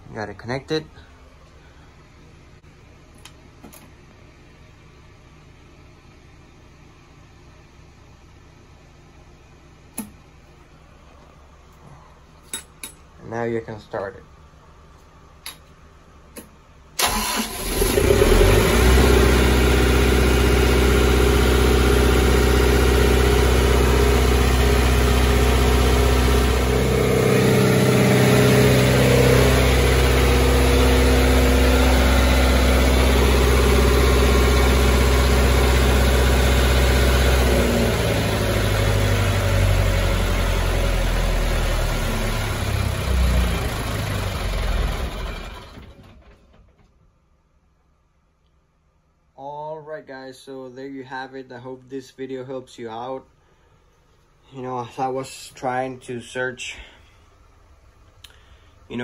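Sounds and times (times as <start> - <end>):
diesel engine starting and running: 16.4 - 47.1.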